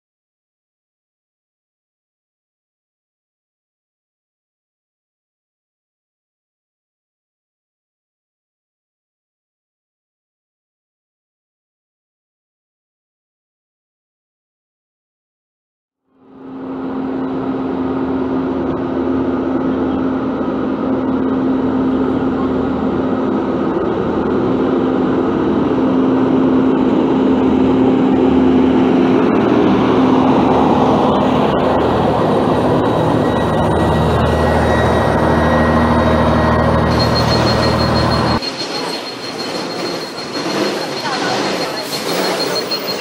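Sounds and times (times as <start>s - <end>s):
steady engine whine: 16.1s - 43.0s
bus diesel engine passing: 16.2s - 43.0s.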